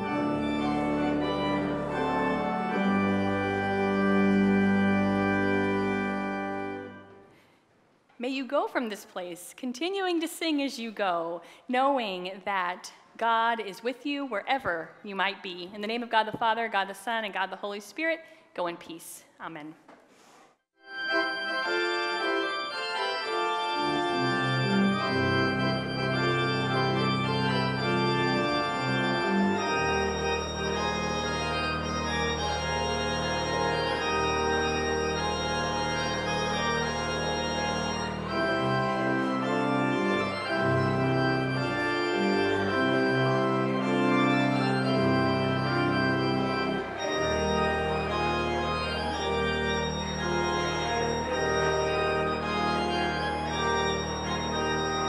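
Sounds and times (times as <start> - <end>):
church organ playing chords: 0.0 - 7.4, 20.8 - 55.0.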